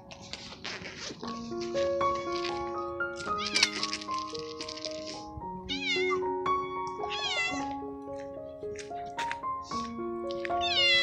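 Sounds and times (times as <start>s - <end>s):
background music held notes: 0.0s - 11.0s
cat meowing: 3.3s - 3.9s, 5.6s - 6.4s, 7.0s - 7.8s, 10.6s - 11.0s.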